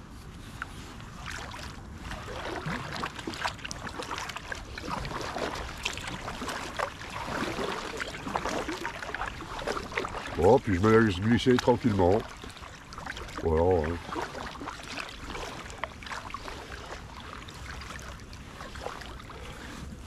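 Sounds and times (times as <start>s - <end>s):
kayak paddle splashing: 0.1s - 20.0s.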